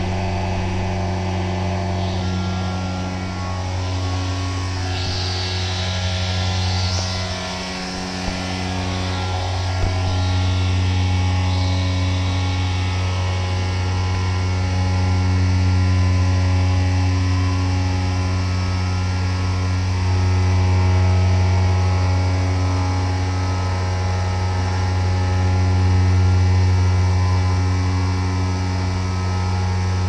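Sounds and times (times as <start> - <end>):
milling machine humming: 0.0 - 13.0.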